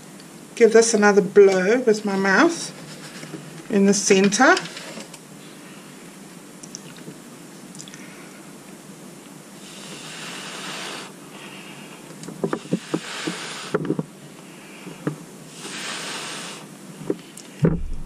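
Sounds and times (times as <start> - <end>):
breathy blowing: 9.6 - 12.0.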